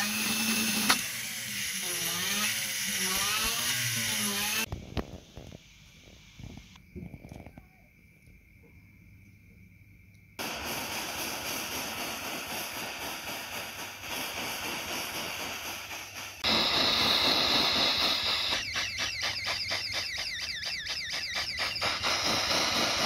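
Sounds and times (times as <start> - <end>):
torch flame hissing: 10.4 - 19.9, 21.3 - 23.0
fast even pulsing: 10.4 - 23.0.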